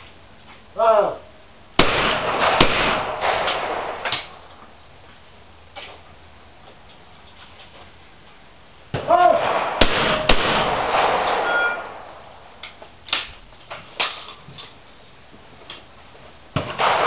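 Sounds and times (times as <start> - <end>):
shotgun shots: 1.8 - 4.4, 9.0 - 13.3, 16.6 - 17.0.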